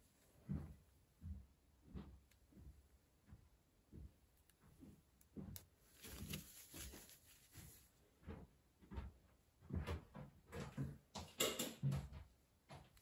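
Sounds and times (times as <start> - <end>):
rustle: 5.9 - 7.9.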